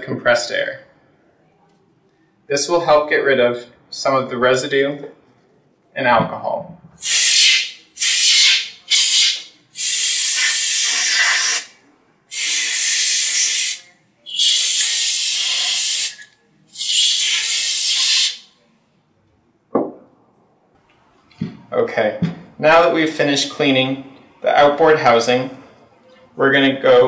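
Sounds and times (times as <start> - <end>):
compressed air spraying: 7.0 - 18.5.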